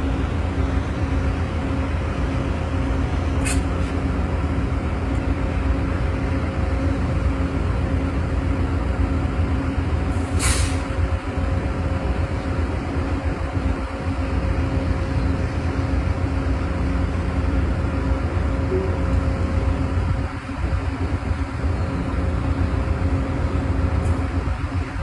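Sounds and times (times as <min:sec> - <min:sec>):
diesel locomotive idling: 0:00.0 - 0:25.0
air brake hiss: 0:03.4 - 0:03.7, 0:10.2 - 0:11.0.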